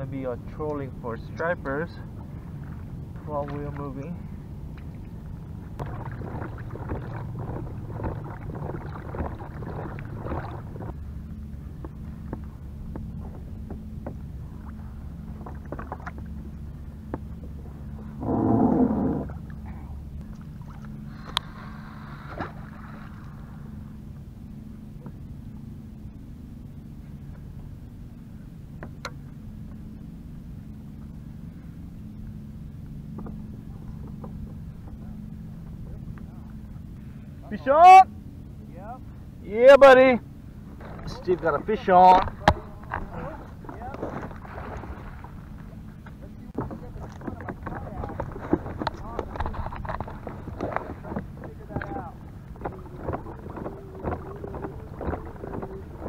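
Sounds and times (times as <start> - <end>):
low hum of pedal drive: 0.0 - 56.0
water along hull: 0.0 - 56.0
splashing and rustling: 2.0 - 23.8, 40.6 - 56.0.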